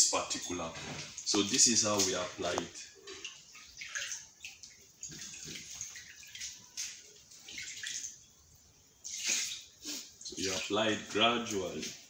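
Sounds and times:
liquid splashing into water: 1.0 - 8.3, 9.0 - 10.8.

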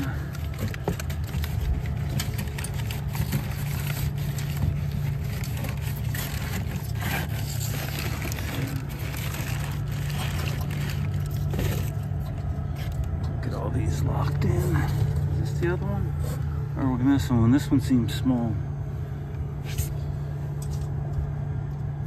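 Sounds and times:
low machinery drone: 0.0 - 22.0.

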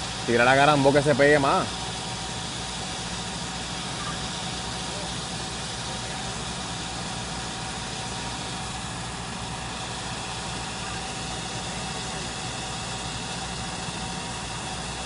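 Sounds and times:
truck engine idling: 0.0 - 15.0.

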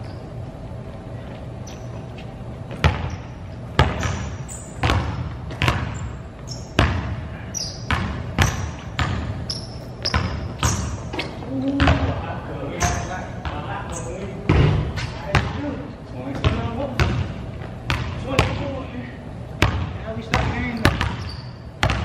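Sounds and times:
sneaker squeaks: 0.0 - 0.5, 1.2 - 15.6, 20.3 - 22.0
basketball bouncing on gym floor: 2.7 - 18.8, 19.6 - 22.0.

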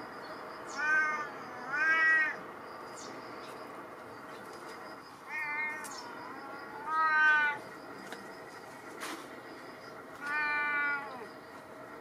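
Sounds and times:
cat meowing: 0.7 - 2.4, 5.3 - 6.0, 6.7 - 7.6, 10.2 - 11.3.

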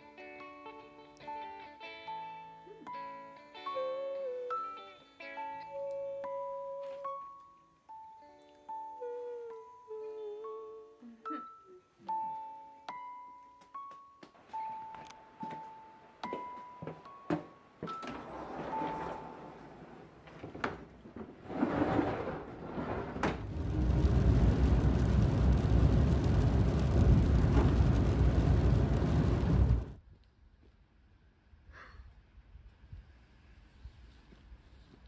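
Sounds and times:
road and engine noise inside car: 23.4 - 29.9.

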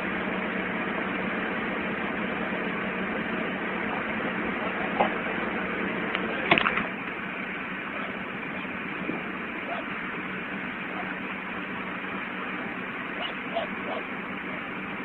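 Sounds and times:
helicopter engine and rotor: 0.0 - 15.0.

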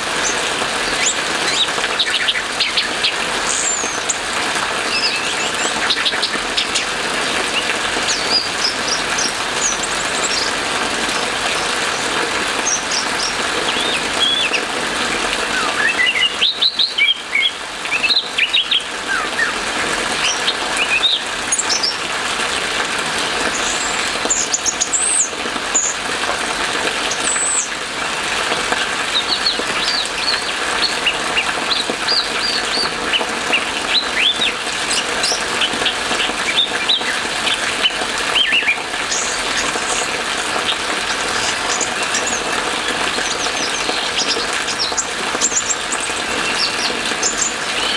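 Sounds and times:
rain hissing: 0.0 - 47.9.

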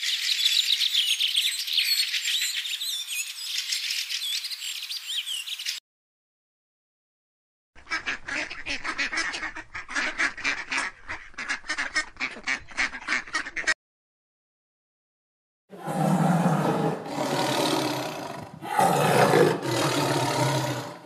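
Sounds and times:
ducks quacking: 7.8 - 13.8.

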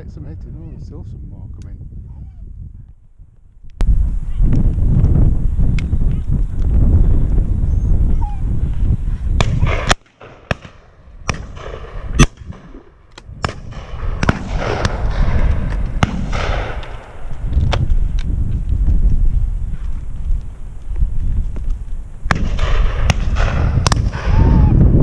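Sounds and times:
wind rumble on microphone: 0.0 - 25.0
distant echoing gunshots: 9.4 - 17.4, 22.3 - 24.4
loud shotgun shot: 9.4 - 17.9, 22.3 - 24.7.

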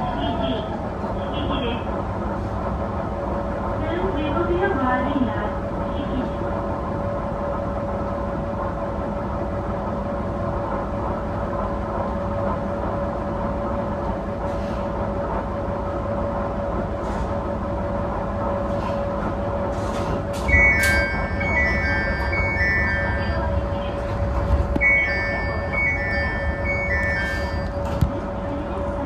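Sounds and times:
railcar engine drone: 0.0 - 29.0
electronic chime: 20.5 - 23.6, 24.8 - 28.0.

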